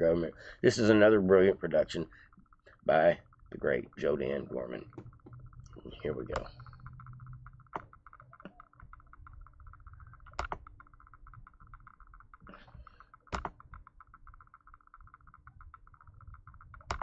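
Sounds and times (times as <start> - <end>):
fast even ticking: 0.0 - 17.0
low hum: 0.0 - 17.0
computer mouse clicks: 3.5 - 17.0.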